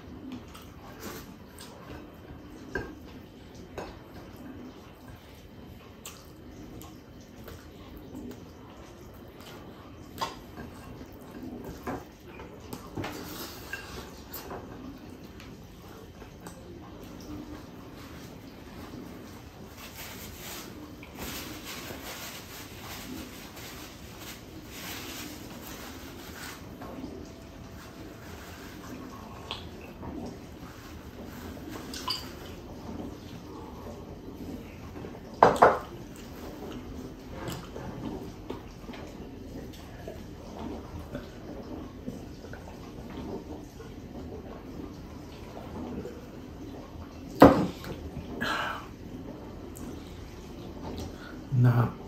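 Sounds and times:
paper towel rustling: 17.4 - 33.2.

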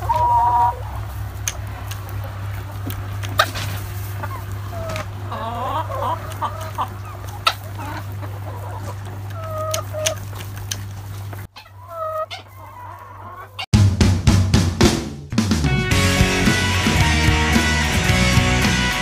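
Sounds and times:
hens clucking: 0.0 - 13.7.

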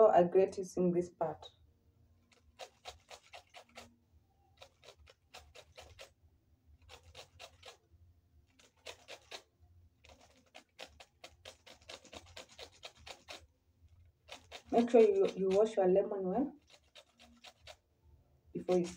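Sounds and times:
lemon peel rasping on grater: 2.3 - 3.9, 4.6 - 6.2, 6.8 - 7.8, 8.5 - 13.5, 14.2 - 15.8, 16.6 - 17.8, 18.6 - 18.9.

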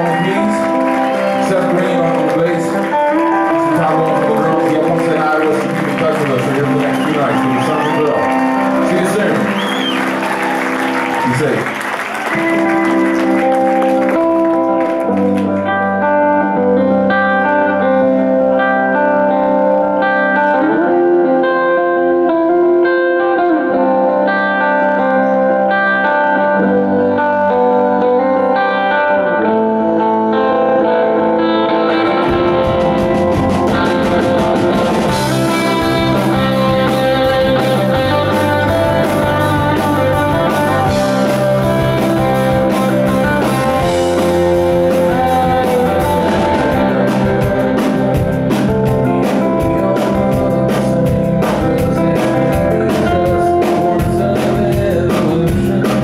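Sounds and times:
bass guitar: 0.0 - 56.0
electric guitar: 0.0 - 56.0
drum beat: 32.2 - 56.0.

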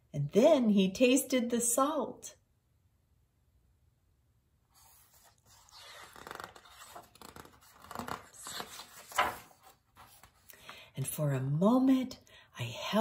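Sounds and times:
book page turning: 4.7 - 10.5.

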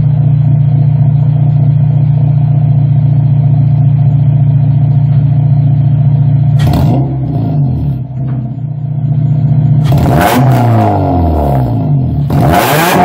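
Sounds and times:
car engine revving against limiter: 6.5 - 8.2, 9.7 - 13.0.

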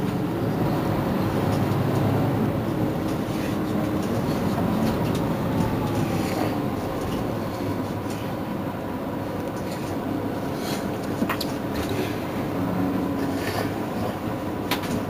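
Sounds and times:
bus engine humming: 0.0 - 15.0.

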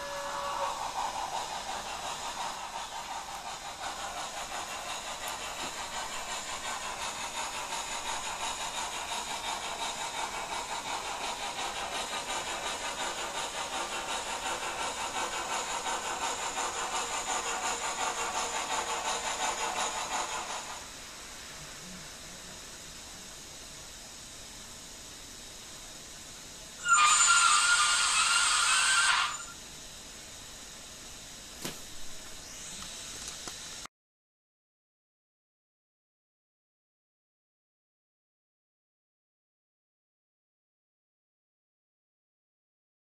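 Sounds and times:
faint hiss: 0.0 - 33.9
model locomotive steam chuffing: 0.0 - 33.9.

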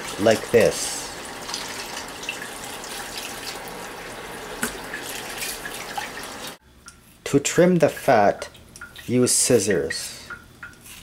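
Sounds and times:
tap running into bowl of water: 4.6 - 6.2.

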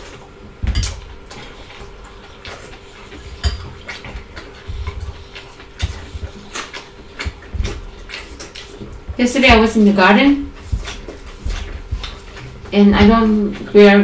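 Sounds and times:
chewing and crunching food: 0.0 - 14.0
cutlery clinking on plates: 0.7 - 1.0.

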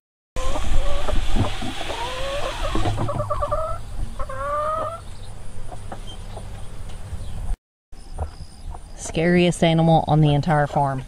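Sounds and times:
chickens calling: 0.4 - 7.5.

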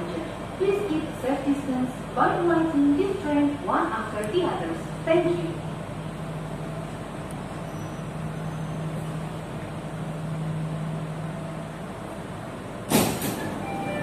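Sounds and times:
train car low hum: 0.0 - 14.0
sudden loud hiss: 12.9 - 13.5.

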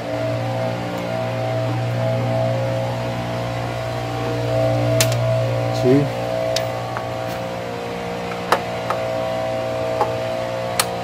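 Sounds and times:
steady motor drone: 0.0 - 11.0.

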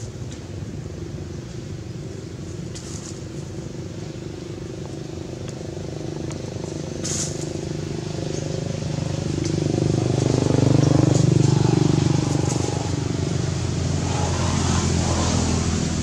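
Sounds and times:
vehicle engine running: 1.9 - 16.0
dry rustle: 2.6 - 3.5, 6.6 - 7.6.

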